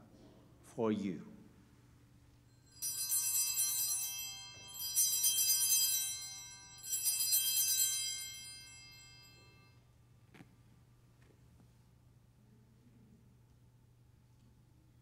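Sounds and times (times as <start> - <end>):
altar bells jangling: 2.5 - 9.8.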